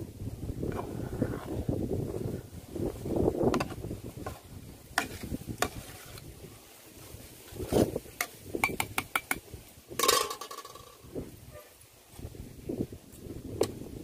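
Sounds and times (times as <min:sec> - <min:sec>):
metal ladle scraping a pot: 0:05.0 - 0:06.2.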